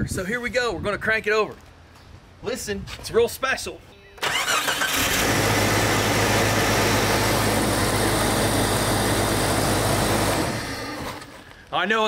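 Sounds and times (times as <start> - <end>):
car engine idling: 5.1 - 11.4.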